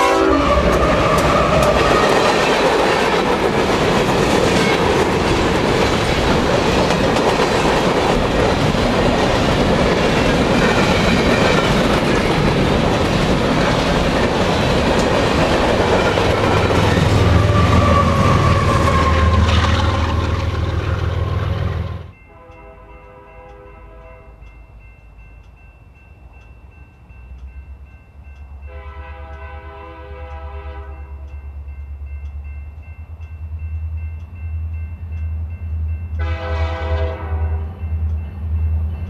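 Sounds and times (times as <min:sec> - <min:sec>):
locomotive air horn: 0:00.0 - 0:00.8, 0:17.2 - 0:20.0, 0:22.3 - 0:24.4, 0:28.7 - 0:31.2, 0:36.2 - 0:37.8
train passing rumble: 0:00.0 - 0:39.0
locomotive engine rumble: 0:11.7 - 0:22.2.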